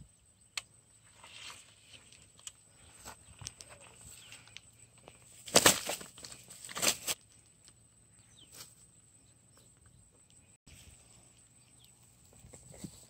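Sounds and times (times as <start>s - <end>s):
fish flopping on grass: 5.4s - 7.2s.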